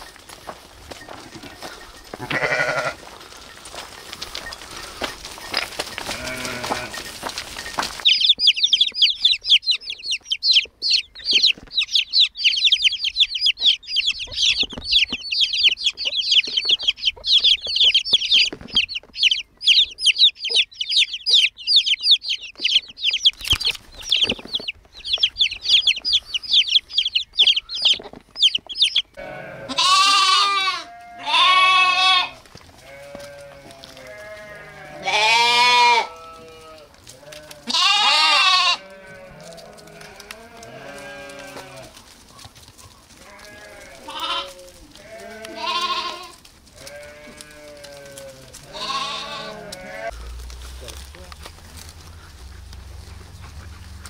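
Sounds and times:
baby chicks peeping: 0.0s - 54.0s
lambs bleating: 1.2s - 7.2s, 29.2s - 42.0s, 43.2s - 50.2s.

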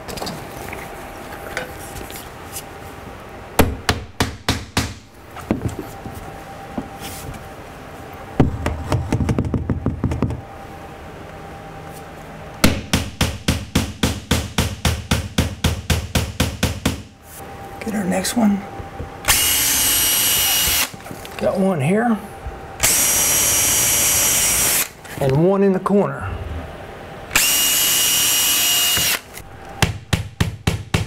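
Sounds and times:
hammer striking nail: 12.6s - 17.1s, 29.8s - 31.0s.

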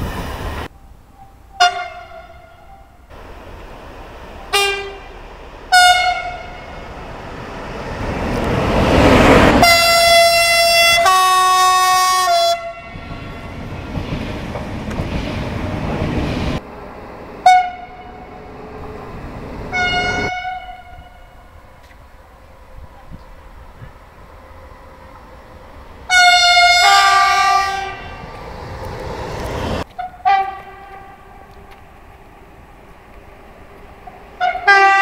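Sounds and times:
passing train rumble: 0.0s - 35.0s
train horn toots: 1.5s - 3.0s, 4.5s - 5.1s, 5.7s - 6.8s, 9.6s - 13.7s, 17.4s - 18.3s, 19.7s - 21.7s, 26.1s - 28.3s, 29.8s - 31.4s, 34.4s - 35.0s
long loud train horn: 1.6s - 2.6s, 4.5s - 5.1s, 5.7s - 6.8s, 9.6s - 13.7s, 17.4s - 18.3s, 19.7s - 21.6s, 26.1s - 28.3s, 29.9s - 31.4s, 34.4s - 35.0s.

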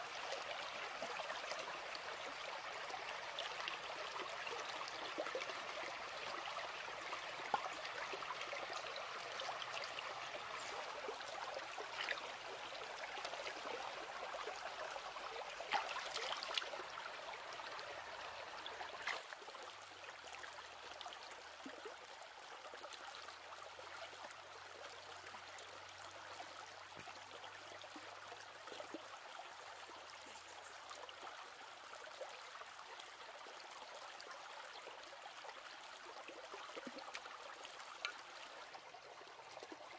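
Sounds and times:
stream trickling: 0.0s - 39.9s.

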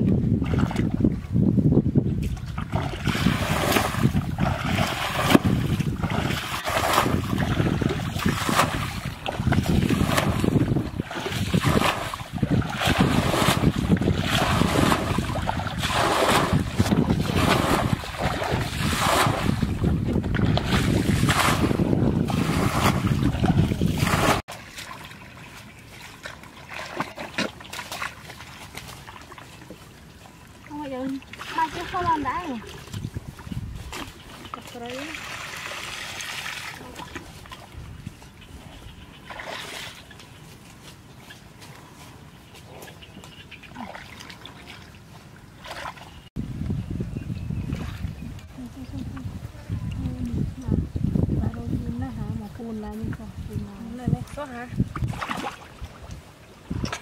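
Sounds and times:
water splashing and sloshing: 0.0s - 1.4s, 2.1s - 46.4s, 47.6s - 57.0s
wind buffeting microphone: 0.0s - 24.5s, 30.8s - 35.1s, 37.2s - 39.3s, 46.3s - 57.0s.

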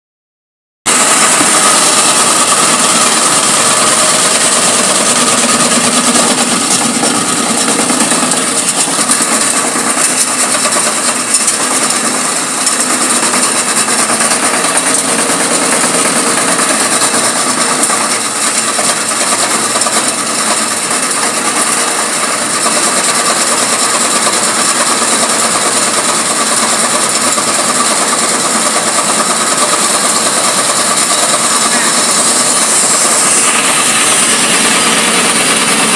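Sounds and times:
conveyor motor whirring: 0.9s - 35.9s
material rattling in hopper: 0.9s - 35.9s.

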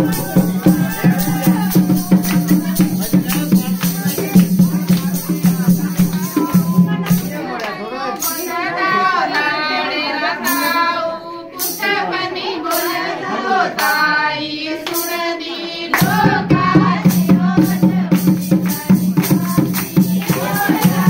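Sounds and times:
sharp beats: 0.0s - 7.4s
group singing folk song: 0.0s - 21.0s.

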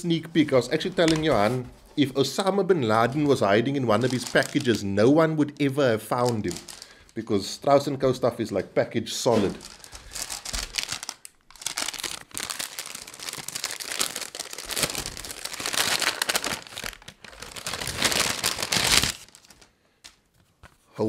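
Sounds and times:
paper packaging crinkling and tearing: 3.2s - 4.9s, 6.1s - 7.1s, 9.4s - 20.2s.

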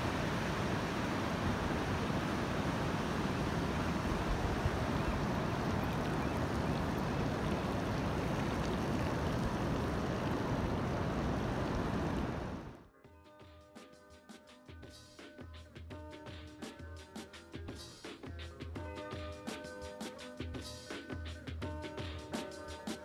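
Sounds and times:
surf washing up beach: 0.0s - 12.8s
wind buffeting microphone: 0.0s - 12.8s.

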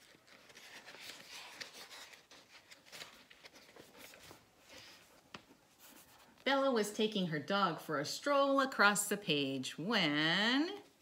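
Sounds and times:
paper pages rustling: 0.0s - 6.5s.

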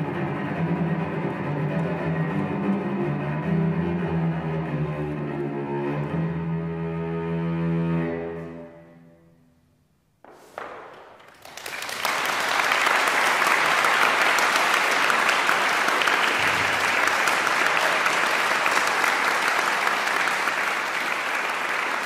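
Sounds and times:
audience applause: 11.0s - 22.0s.

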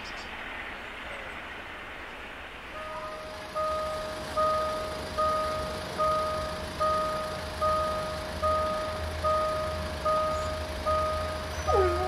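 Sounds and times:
low steady rumble: 0.0s - 12.0s
level crossing bell ringing: 2.8s - 12.0s.

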